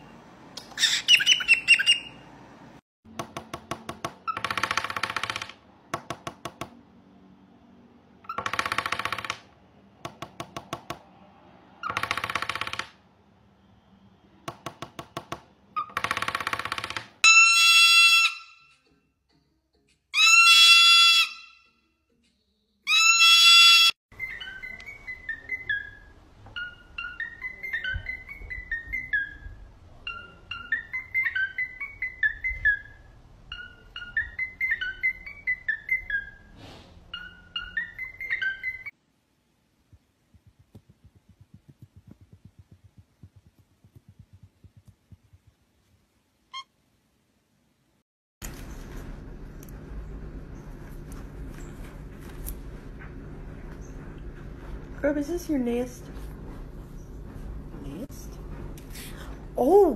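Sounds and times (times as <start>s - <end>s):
cockatiel chirp: 0.8s - 2.2s, 22.9s - 36.5s, 37.1s - 38.9s
fingertips tapping wooden table: 3.1s - 6.8s
cockatoo loud call: 20.2s - 21.6s, 22.9s - 26.0s
bird hissing: 36.5s - 37.2s
bird beak drumming on table: 39.9s - 45.6s.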